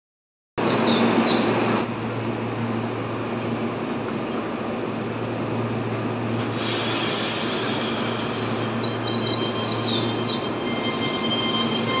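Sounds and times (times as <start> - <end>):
electric train humming: 0.6 - 12.0
station noise: 3.1 - 12.0.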